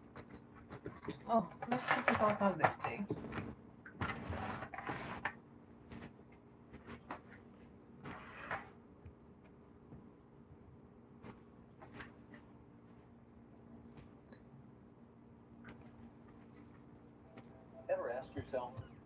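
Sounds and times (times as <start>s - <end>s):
faint steady hum: 0.0s - 19.0s
rustling scrape: 4.1s - 5.3s, 6.7s - 8.8s.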